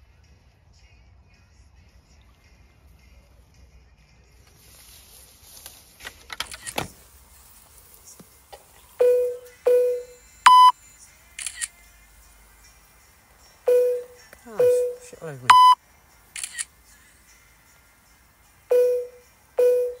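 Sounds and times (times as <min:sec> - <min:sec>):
clicks and handling noises: 0:05.6 - 0:07.0
electronic beeps: 0:09.0 - 0:10.8, 0:13.7 - 0:15.8, 0:18.7 - 0:20.0.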